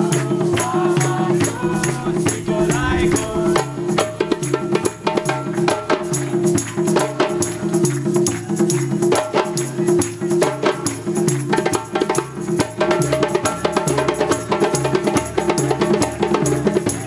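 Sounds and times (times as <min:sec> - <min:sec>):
hand drums playing fast rhythm: 0:00.0 - 0:17.0
low drum pattern: 0:01.5 - 0:05.2.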